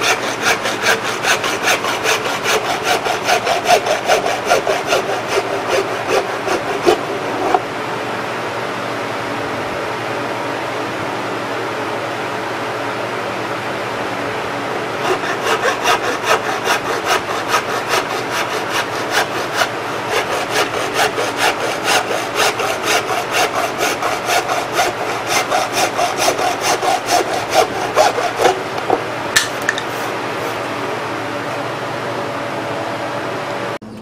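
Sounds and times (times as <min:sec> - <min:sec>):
hacksaw cutting plastic pipe: 0:00.0 - 0:07.6, 0:15.0 - 0:30.5.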